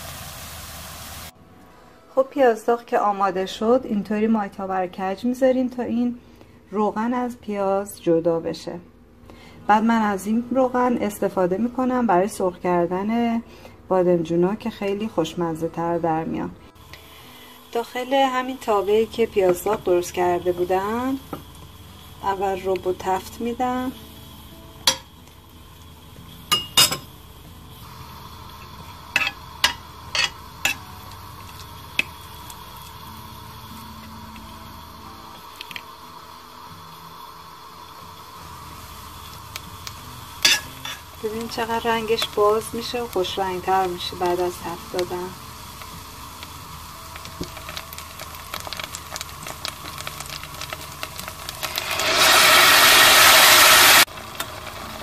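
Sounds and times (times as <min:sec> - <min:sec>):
tomato puree sizzling: 0:00.0 - 0:01.4, 0:14.2 - 0:55.0
paste crackling in hot oil: 0:17.7 - 0:55.0
metal spoon clinking on pan: 0:24.9 - 0:25.1, 0:26.5 - 0:27.1, 0:29.2 - 0:30.8, 0:40.4 - 0:41.0.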